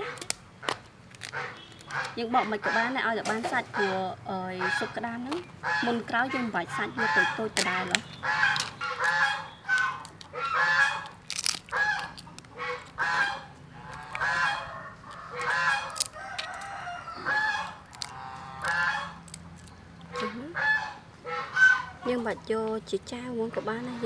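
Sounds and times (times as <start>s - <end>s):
crab shell cracking: 0.0s - 2.2s, 7.4s - 20.2s
geese honking: 0.0s - 19.4s, 20.1s - 22.5s.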